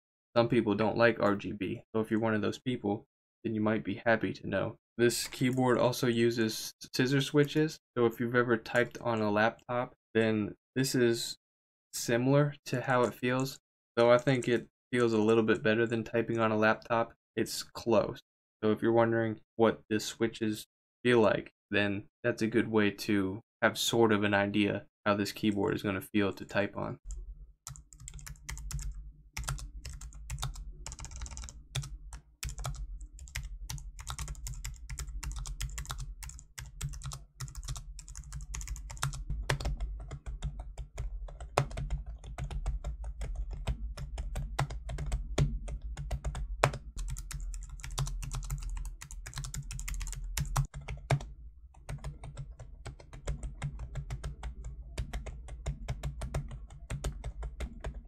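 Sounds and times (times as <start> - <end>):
keyboard typing clicks: 27.7 - 58.0.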